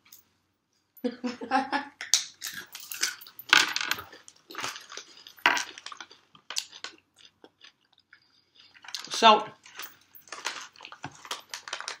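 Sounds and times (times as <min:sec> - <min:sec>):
people crunching peanuts: 0:02.1 - 0:03.3, 0:04.0 - 0:09.2.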